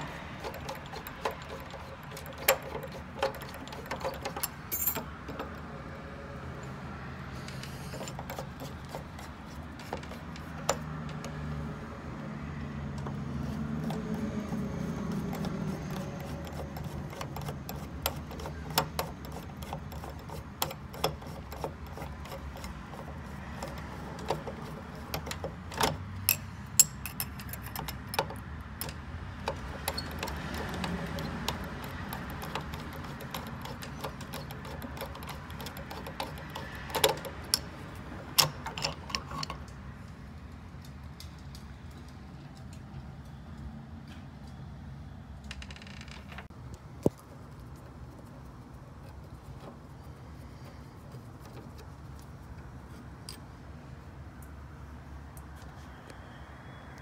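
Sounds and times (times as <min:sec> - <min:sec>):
screwdriver clicking on metal: 0:00.0 - 0:05.7, 0:07.4 - 0:11.4, 0:13.8 - 0:39.8.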